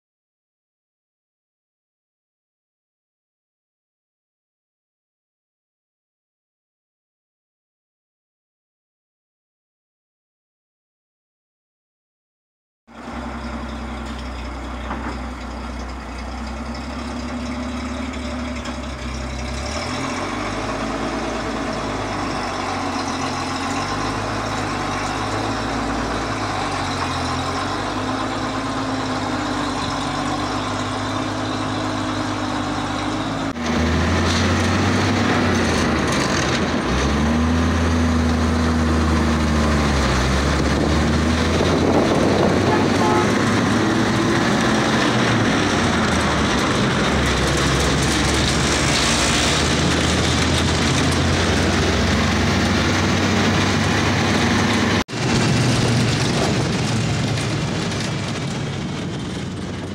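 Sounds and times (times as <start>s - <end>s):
petrol engine running: 12.9s - 59.9s.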